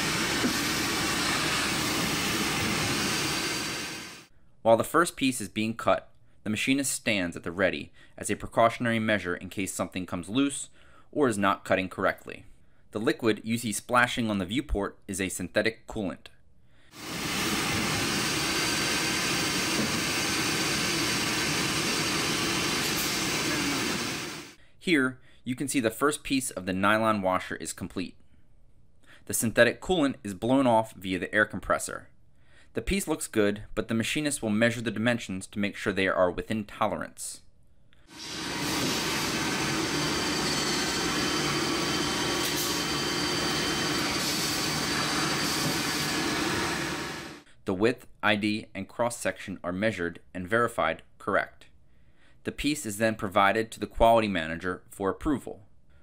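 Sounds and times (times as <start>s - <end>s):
machine cutting nylon: 38.2s - 47.3s.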